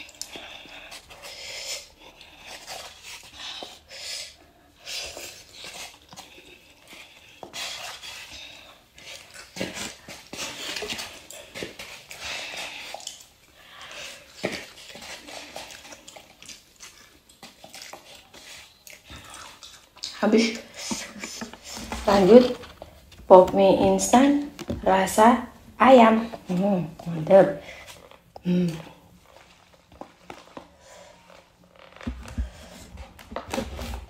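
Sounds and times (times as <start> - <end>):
slurping and chewing noodles: 0.0 - 23.2.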